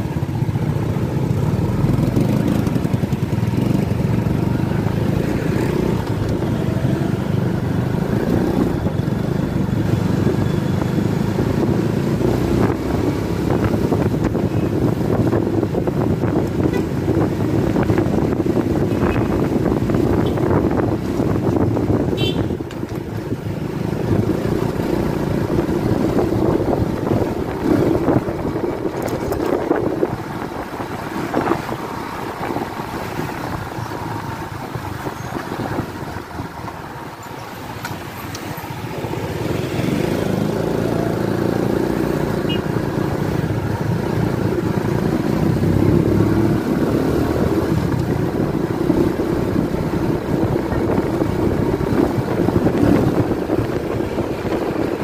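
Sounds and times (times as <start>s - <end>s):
motorcycle engine running: 0.0s - 11.3s
wind rushing over microphone: 0.0s - 55.0s.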